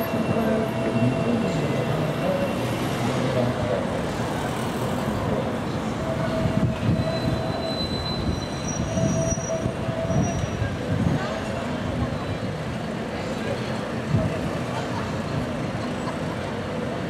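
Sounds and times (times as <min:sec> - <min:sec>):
high wheel squeal: 0:00.0 - 0:03.4, 0:04.1 - 0:12.7
street noise: 0:00.0 - 0:17.0
tram running on track: 0:00.0 - 0:17.0.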